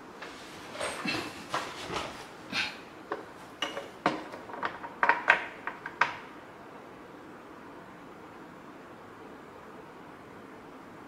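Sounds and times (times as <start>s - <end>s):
light clicks and knocks of parts: 3.1s - 6.2s.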